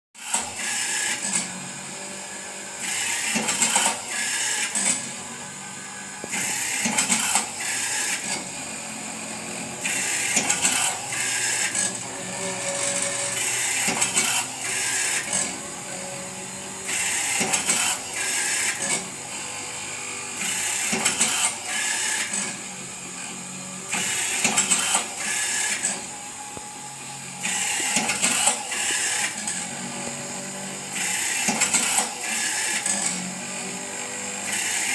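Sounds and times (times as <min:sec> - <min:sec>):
machine whirring: 0:00.2 - 0:34.9
machine clicks and knocks: 0:24.0 - 0:26.0.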